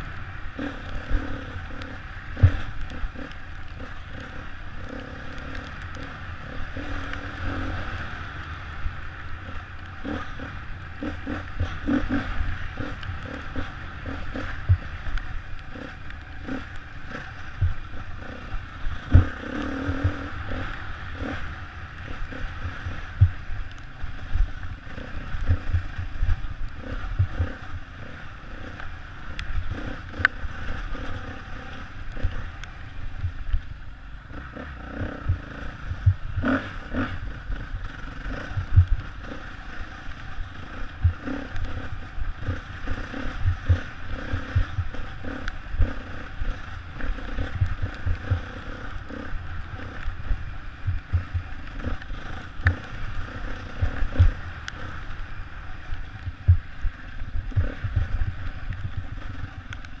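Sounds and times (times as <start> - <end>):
motorcycle engine running: 0.0 - 60.0
wind noise: 0.0 - 60.0
low thumps and clatter: 1.8 - 6.1, 11.0 - 18.3, 18.9 - 21.4, 22.2 - 23.5, 35.0 - 39.4, 40.8 - 54.9, 56.2 - 60.0.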